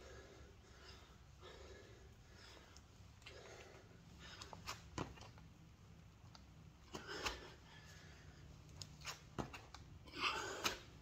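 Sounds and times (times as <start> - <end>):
heavy breath: 0.0 - 4.7
hands and feet hitting mat: 8.8 - 9.8.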